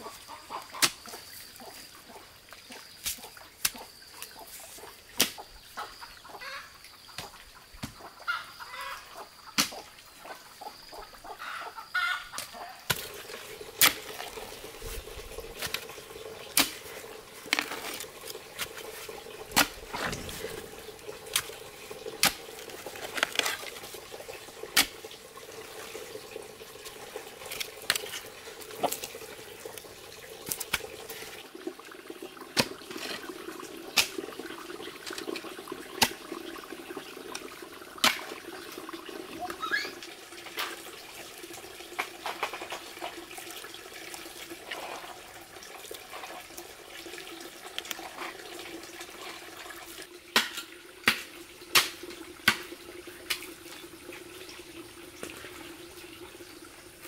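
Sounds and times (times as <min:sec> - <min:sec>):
water running: 0:12.4 - 0:57.0.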